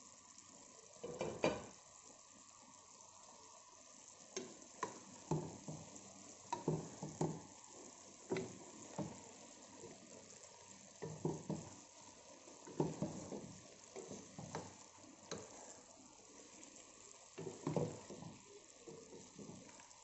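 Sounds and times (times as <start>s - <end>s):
cooking pot hiss: 0.0s - 20.0s
wooden spoon scraping a pot: 12.6s - 15.6s.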